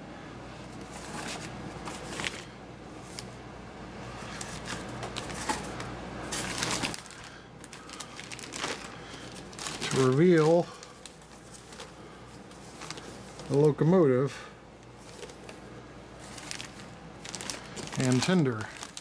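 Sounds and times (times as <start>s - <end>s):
plastic bag crinkling: 0.9s - 3.3s, 4.2s - 13.9s, 16.2s - 19.0s.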